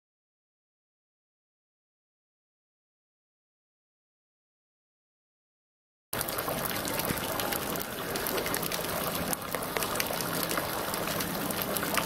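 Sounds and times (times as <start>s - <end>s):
fountain water splashing: 6.2s - 12.0s.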